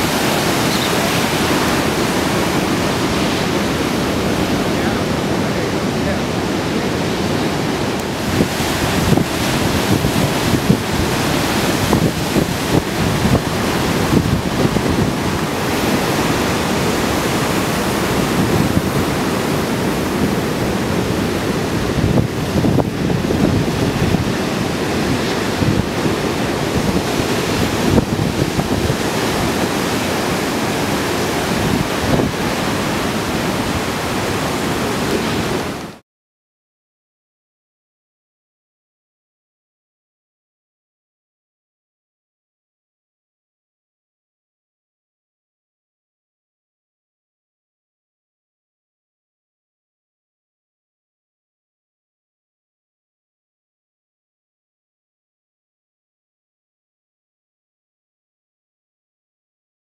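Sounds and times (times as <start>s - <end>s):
wind buffeting microphone: 0.0s - 35.9s
ocean waves breaking: 0.0s - 36.0s.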